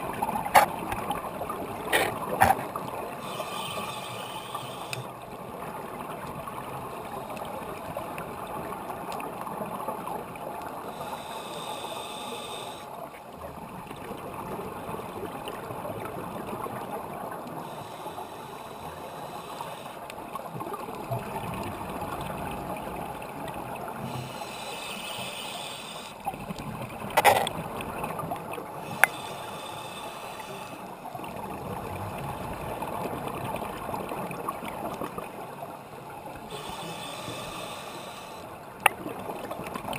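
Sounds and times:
underwater regulator breathing: 1.9 - 5.1, 10.9 - 13.0, 17.5 - 20.0, 24.0 - 26.2, 28.8 - 30.9, 36.5 - 38.6.

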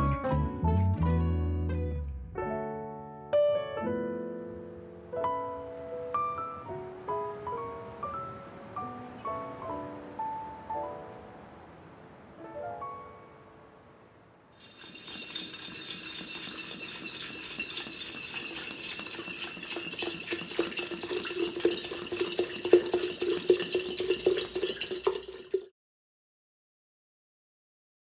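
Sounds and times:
liquor pouring into a jar: 14.6 - 25.7.

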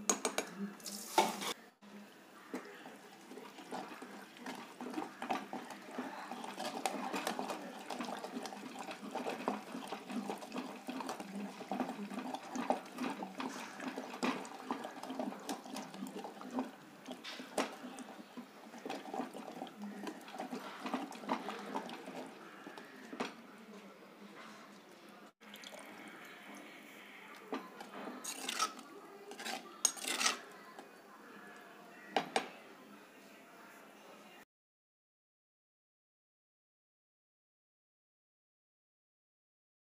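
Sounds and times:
masher squelching in mash: 2.3 - 23.7, 25.5 - 30.9.

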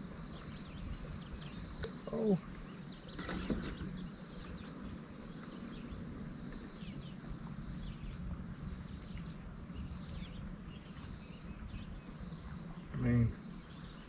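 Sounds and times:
insects buzzing: 0.0 - 14.0
steady low rumble: 3.8 - 14.0.

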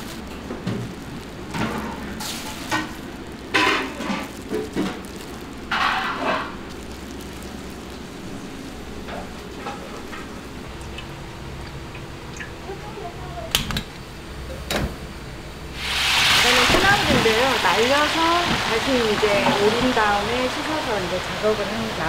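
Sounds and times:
wet greens rustling and squelching: 0.0 - 11.8
low kitchen hum: 0.0 - 22.0.

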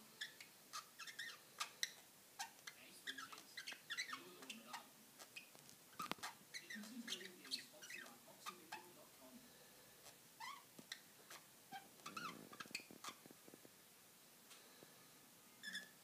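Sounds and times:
budgerigar chirping and squeaking: 0.2 - 8.9, 10.0 - 13.2, 15.6 - 16.0.

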